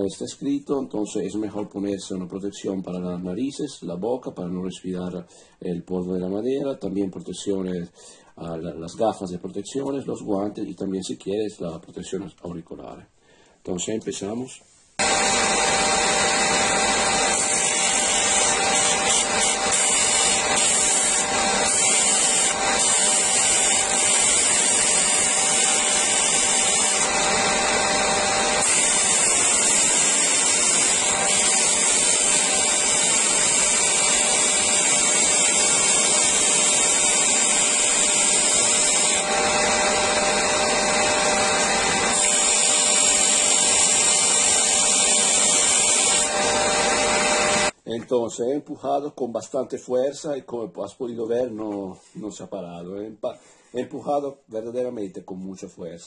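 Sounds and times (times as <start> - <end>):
wood sanding hiss: 15.0 - 47.7
sander motor running: 15.0 - 47.8.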